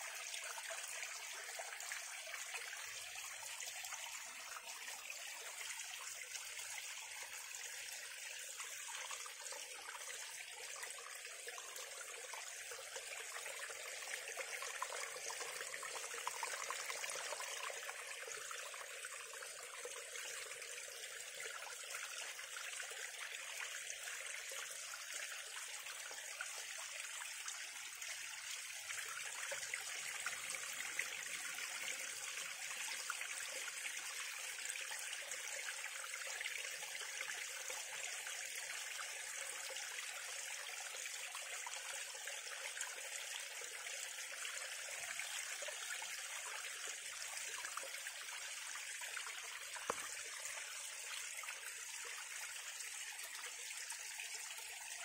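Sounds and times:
water cascading over stones: 0:44.4 - 0:55.0.

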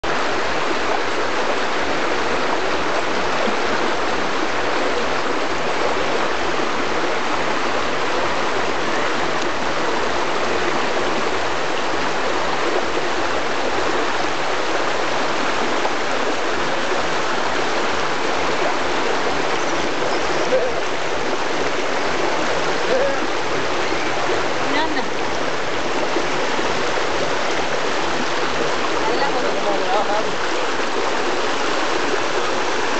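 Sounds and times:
river rushing over rocks: 0:00.0 - 0:32.9.

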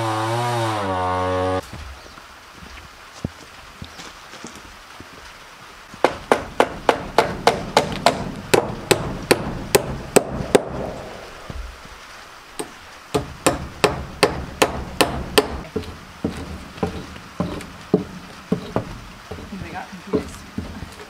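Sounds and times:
hammer driving nails into wood: 0:06.0 - 0:11.0, 0:12.6 - 0:15.9.

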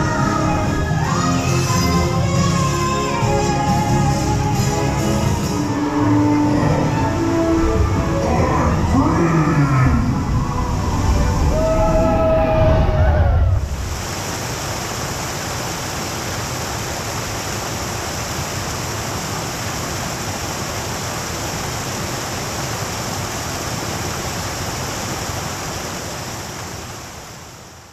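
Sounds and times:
fountain water splashing: 0:13.6 - 0:27.9.

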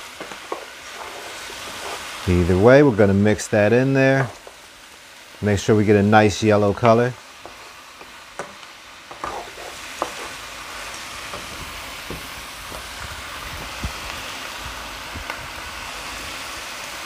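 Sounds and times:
food sizzling in a frying pan: 0:00.0 - 0:17.0
wooden spoon knocking pan: 0:07.4 - 0:10.4.

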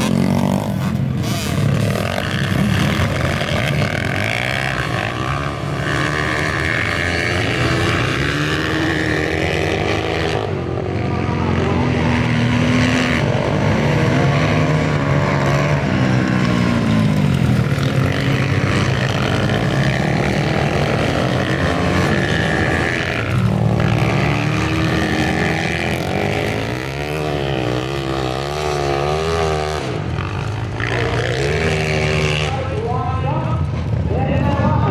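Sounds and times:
dirt bike engines revving: 0:00.0 - 0:34.9.

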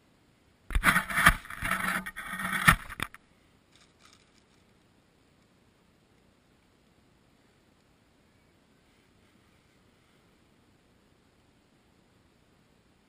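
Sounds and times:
wooden pieces knocking: 0:00.7 - 0:03.2.

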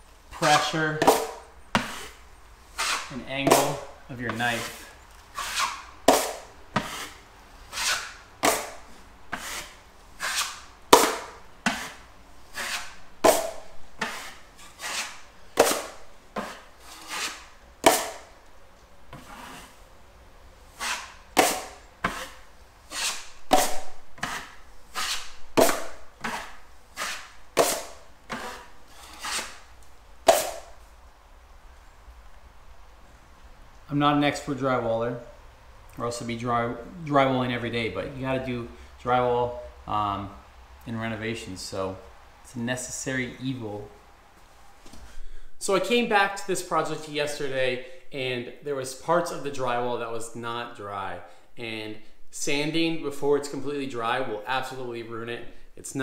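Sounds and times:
drywall knife scraping compound: 0:00.3 - 0:18.3, 0:19.1 - 0:19.8, 0:20.7 - 0:30.8.

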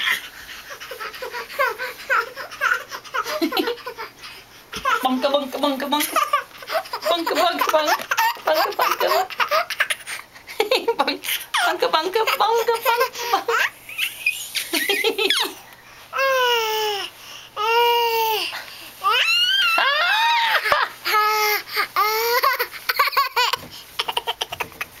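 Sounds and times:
baby laughing and squealing: 0:00.0 - 0:05.1, 0:06.0 - 0:10.2, 0:11.3 - 0:15.6.

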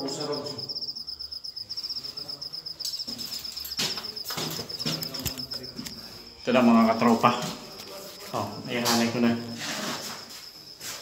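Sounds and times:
cricket trilling: 0:00.0 - 0:11.0
knocks and scuffs: 0:03.0 - 0:05.5.

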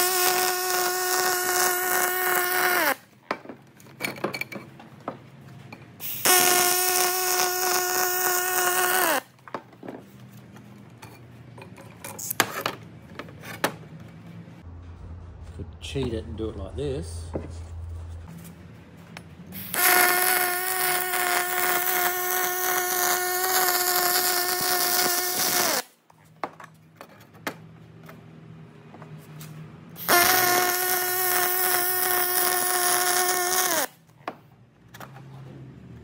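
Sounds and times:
welding arc buzzing and crackling: 0:00.0 - 0:03.0, 0:06.0 - 0:09.2, 0:19.6 - 0:25.9, 0:30.0 - 0:33.9
low hum: 0:14.2 - 0:19.6.

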